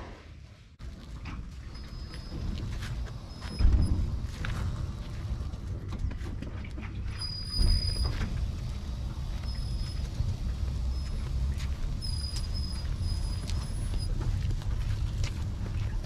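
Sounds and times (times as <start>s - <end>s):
tailwheel rumbling on concrete: 0.8s - 16.0s
short high squeak: 7.1s - 8.2s, 12.0s - 14.1s.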